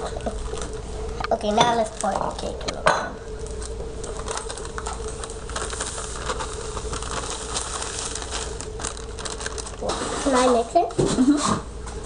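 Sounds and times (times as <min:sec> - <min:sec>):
plastic bag crinkling: 0:00.0 - 0:02.7, 0:03.4 - 0:11.0
low hum: 0:00.0 - 0:10.4
cake mix pouring into bowl: 0:04.0 - 0:10.7.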